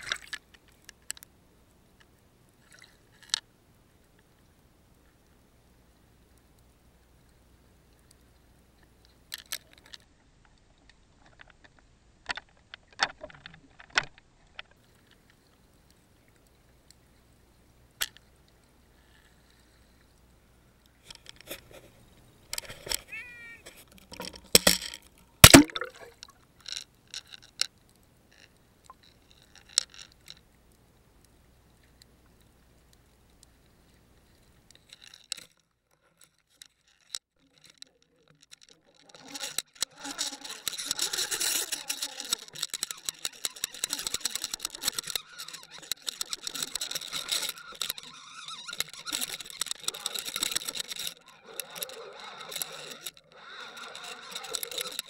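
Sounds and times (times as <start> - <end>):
rapid clicking and rattling: 38.4 - 55.0.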